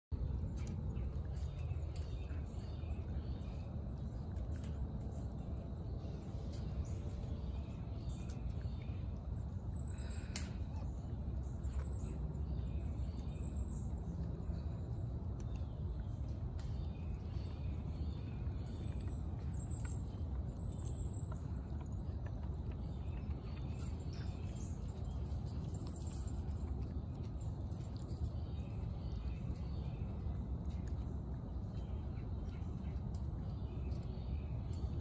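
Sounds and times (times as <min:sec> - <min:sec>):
light clicks: 0:10.0 - 0:10.9.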